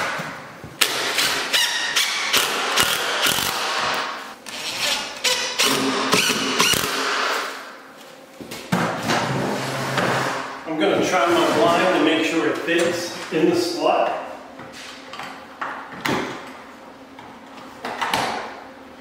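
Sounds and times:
sharp drill clicks: 2.0s - 3.9s.

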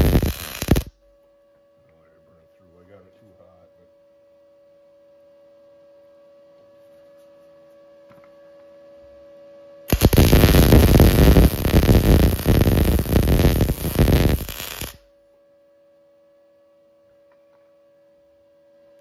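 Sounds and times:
welding arc crackling: 0.0s - 0.9s, 9.9s - 15.0s
faint steady hum: 0.0s - 19.0s.

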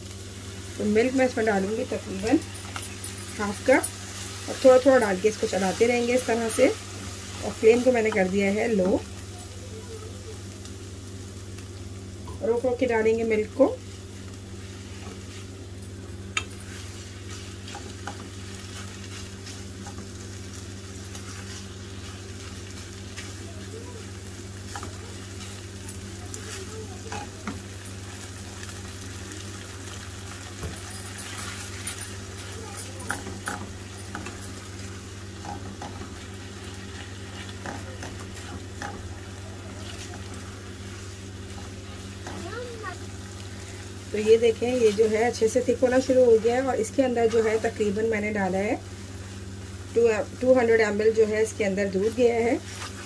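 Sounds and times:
soft sizzle: 0.0s - 53.0s
steady low hum: 0.0s - 53.0s
spatula stirring and scraping pan: 0.3s - 9.6s, 12.3s - 53.0s
spatula scraping a pan: 16.6s - 23.7s, 24.6s - 28.8s, 30.6s - 42.4s, 52.0s - 53.0s.

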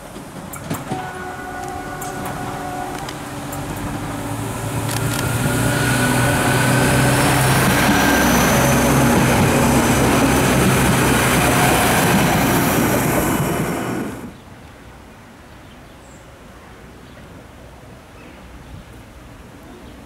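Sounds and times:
wheels rumbling over rails: 0.0s - 14.4s
diesel engine droning: 1.0s - 14.3s.

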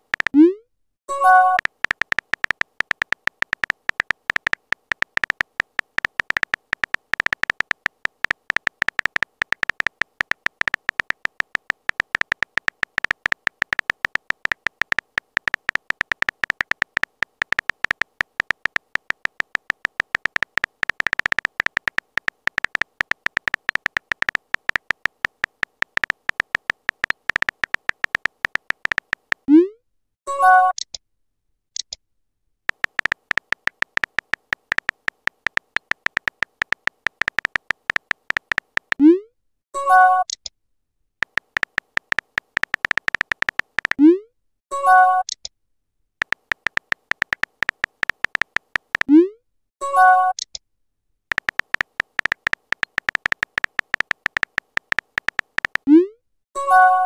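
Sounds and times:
phone keyboard typing clicks: 0.0s - 0.5s, 1.1s - 29.5s, 32.7s - 39.0s, 41.2s - 44.0s, 46.2s - 49.1s, 51.3s - 55.9s.

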